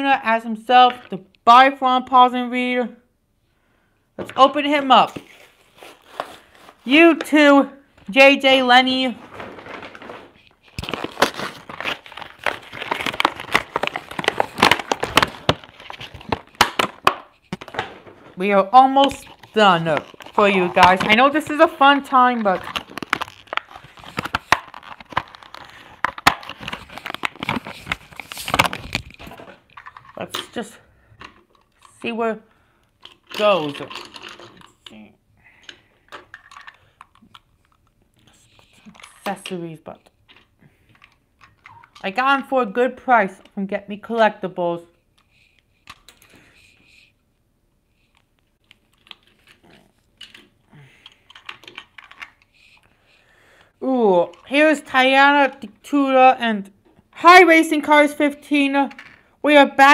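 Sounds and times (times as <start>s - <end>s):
plastic packaging crinkling: 9.2s - 18.4s, 19.0s - 30.2s
toys clicking and rattling: 33.0s - 35.0s, 48.9s - 52.5s.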